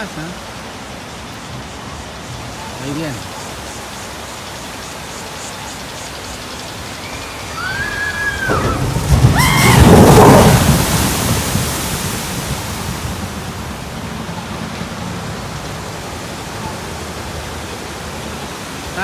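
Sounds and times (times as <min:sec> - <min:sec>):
boat splashing down water chute: 0:00.0 - 0:19.0
rushing water: 0:00.0 - 0:19.0
riders screaming: 0:07.0 - 0:11.0.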